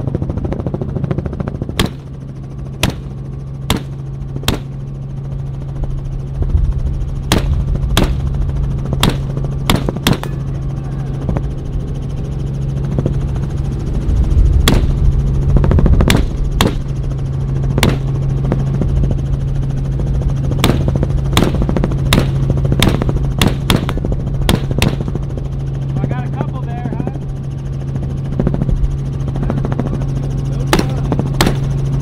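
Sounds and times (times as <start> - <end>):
helicopter drone: 0.0 - 32.0
rifle shots: 1.8 - 2.1, 2.8 - 3.1, 3.7 - 4.7, 7.3 - 8.2, 9.0 - 10.3, 14.6 - 15.0, 16.0 - 16.9, 17.8 - 18.1, 20.6 - 25.1, 30.7 - 31.6.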